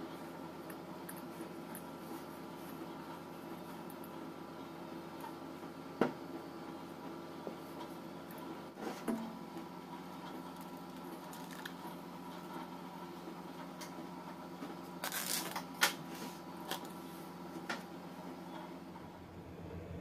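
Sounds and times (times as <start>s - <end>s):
steady background hum: 0.0s - 20.0s
plastic cling wrap crinkling: 10.7s - 11.9s, 15.0s - 15.9s.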